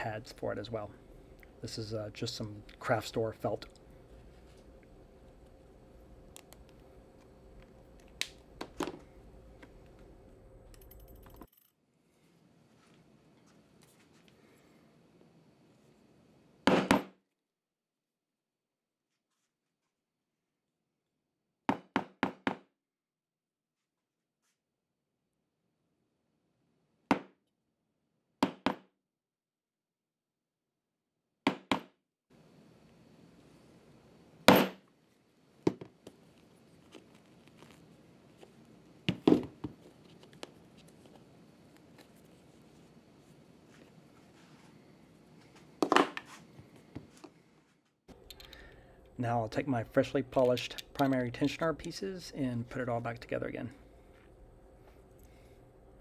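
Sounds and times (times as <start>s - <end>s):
faint room hum: 0.0s - 17.3s, 32.3s - 56.0s.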